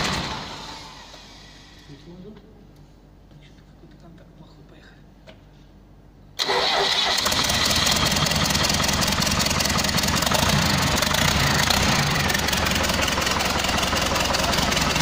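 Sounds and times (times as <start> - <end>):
diesel engine starting and running: 0.0 - 1.9, 6.4 - 15.0.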